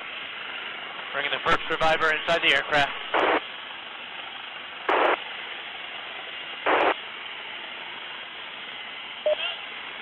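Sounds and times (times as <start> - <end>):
static bursts: 1.2 - 3.5, 4.9 - 5.2, 6.6 - 7.0
intercom hiss: 6.7 - 7.0, 9.3 - 9.7.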